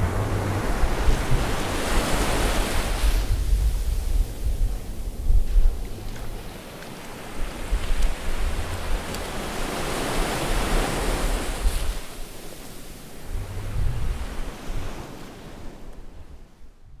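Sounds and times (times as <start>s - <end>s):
wave breaking: 0.0s - 12.0s
ocean waves washing in: 0.0s - 16.8s.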